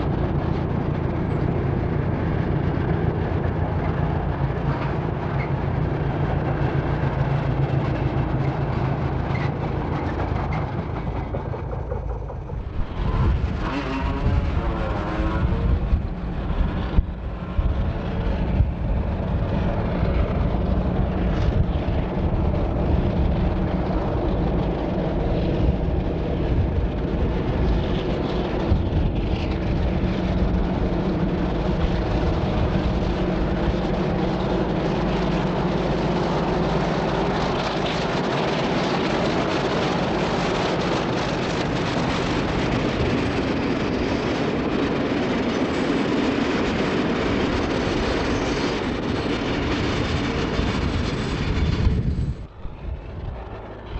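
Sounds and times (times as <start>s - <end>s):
diesel locomotive engine rumbling: 0.0s - 53.9s
rail wagons rolling: 0.0s - 53.9s.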